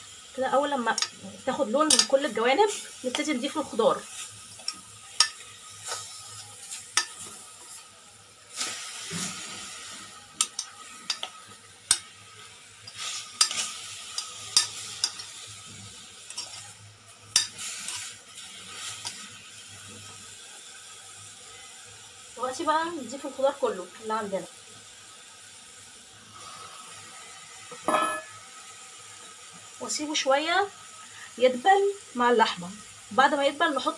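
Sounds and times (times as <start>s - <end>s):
meat sizzling in a pot: 0.0s - 33.9s
spoon knocking against pot: 27.8s - 28.4s.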